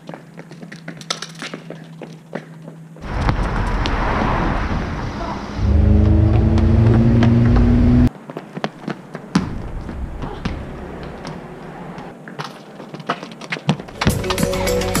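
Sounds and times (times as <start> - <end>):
car engine running: 5.6 - 8.1.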